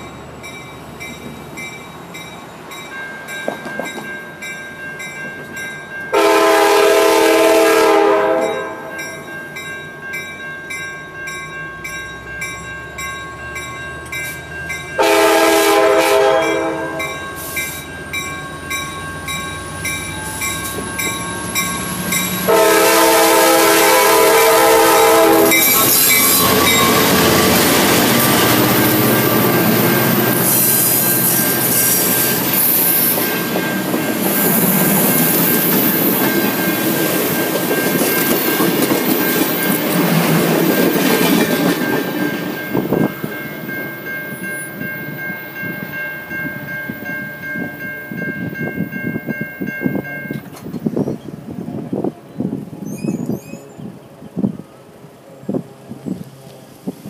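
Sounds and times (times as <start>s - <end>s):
train rolling by: 0.0s - 57.0s
locomotive horn: 6.1s - 9.0s, 15.0s - 17.6s, 22.4s - 30.8s
level crossing bells ringing: 8.4s - 15.6s, 16.2s - 22.8s, 25.3s - 30.6s
train wheels squealing: 17.2s - 22.5s, 25.4s - 43.1s, 52.0s - 54.5s.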